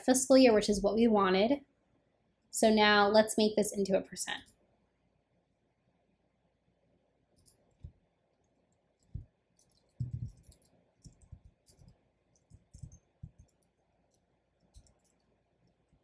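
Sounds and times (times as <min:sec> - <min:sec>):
keyboard keystroke clicks: 0:10.0 - 0:13.6.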